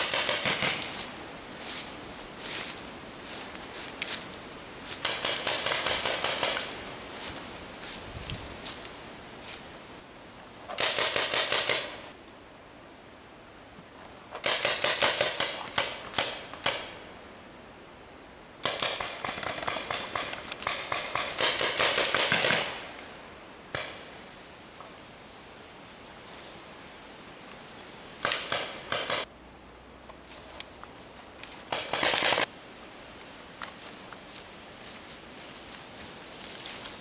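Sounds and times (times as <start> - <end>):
paintball markers firing: 0.0 - 1.0, 5.0 - 6.7, 28.2 - 29.3.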